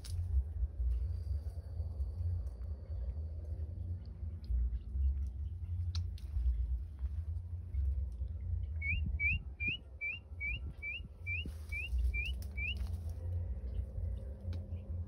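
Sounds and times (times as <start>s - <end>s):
low rumble: 0.0s - 15.0s
bird whistling upward notes: 8.7s - 12.8s.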